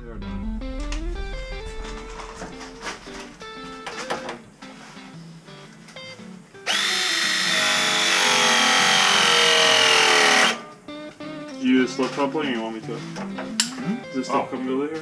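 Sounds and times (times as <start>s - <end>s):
pipe press tool motor whine: 6.7s - 10.6s.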